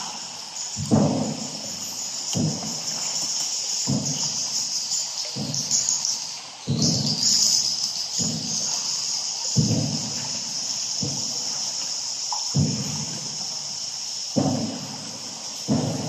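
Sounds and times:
insect chirring: 0:00.0 - 0:16.0
paddle strokes swishing in water: 0:00.0 - 0:16.0.

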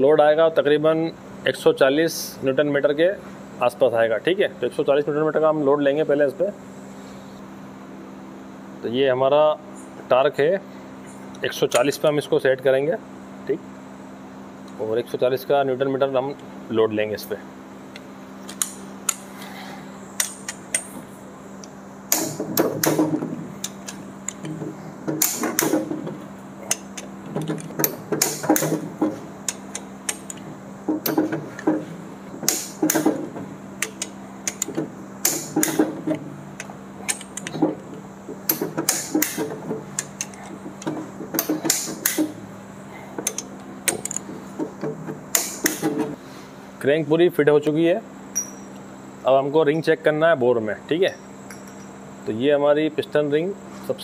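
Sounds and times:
torque wrench ratcheting: 0:29.4 - 0:31.2, 0:33.8 - 0:35.8, 0:36.6 - 0:37.6, 0:43.2 - 0:44.3
metal clinks: 0:48.3 - 0:48.8, 0:51.5 - 0:52.0.

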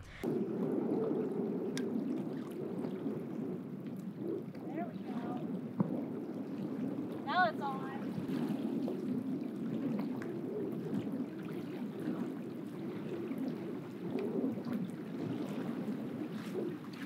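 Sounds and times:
water at the shore: 0:00.0 - 0:17.0
wind rumbling on microphone: 0:00.0 - 0:17.0.

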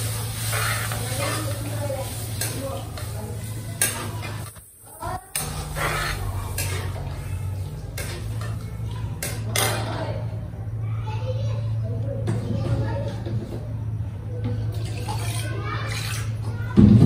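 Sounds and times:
pots and utensils clattering: 0:00.0 - 0:04.6, 0:05.2 - 0:10.0, 0:14.5 - 0:16.4
steady low hum: 0:00.0 - 0:17.0.

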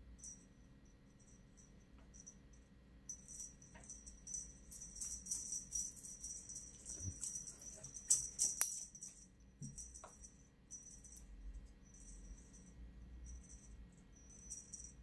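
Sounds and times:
cat toy jingling rattle: 0:03.1 - 0:15.0.

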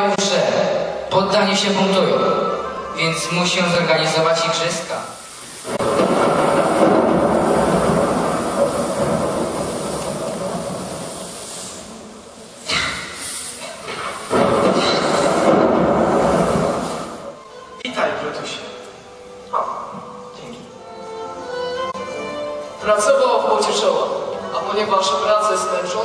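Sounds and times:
fog machine hissing: 0:02.3 - 0:17.5.

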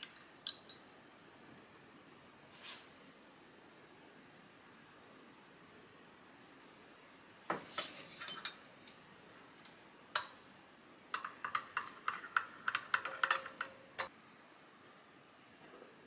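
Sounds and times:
metal spoon clinking on ceramic dish: 0:07.8 - 0:08.7, 0:11.2 - 0:13.8.

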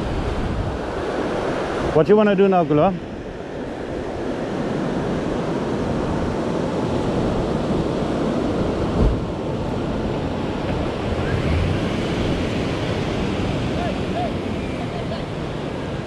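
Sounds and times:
wind buffeting microphone: 0:00.0 - 0:16.0
low thump: 0:09.0 - 0:09.2.

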